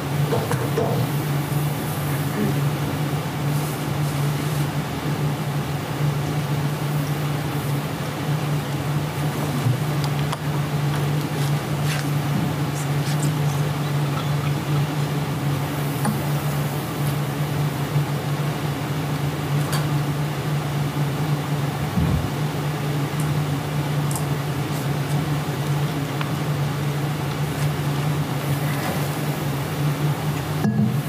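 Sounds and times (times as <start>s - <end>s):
low mechanical hum: 0.0s - 31.0s
soft low thud: 22.0s - 22.3s.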